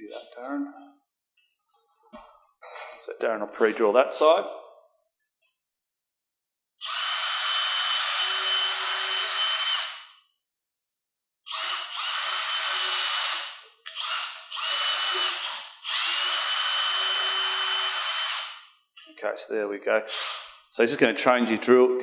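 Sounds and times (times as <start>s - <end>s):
cordless drill boring into wood: 6.8s - 10.2s, 11.4s - 18.7s, 20.1s - 20.6s.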